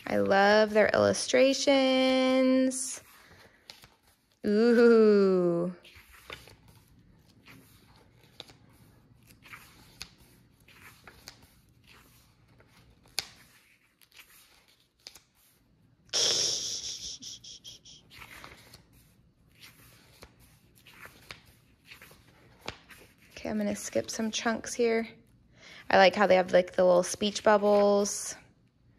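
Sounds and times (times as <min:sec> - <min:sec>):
book pages turning: 0:03.0 - 0:04.8, 0:05.7 - 0:15.8, 0:18.0 - 0:24.2.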